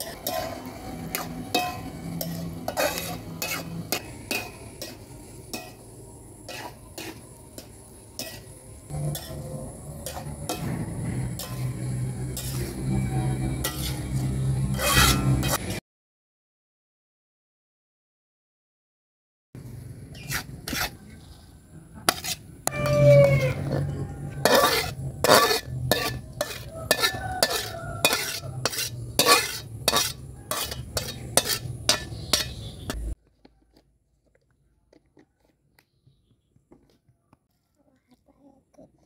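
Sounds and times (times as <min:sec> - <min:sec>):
metal spatula scraping a wok: 0:00.0 - 0:15.8, 0:20.1 - 0:33.2.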